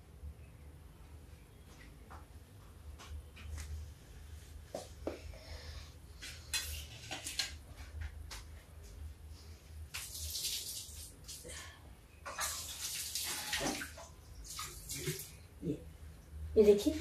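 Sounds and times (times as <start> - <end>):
water splashing: 12.3 - 15.4.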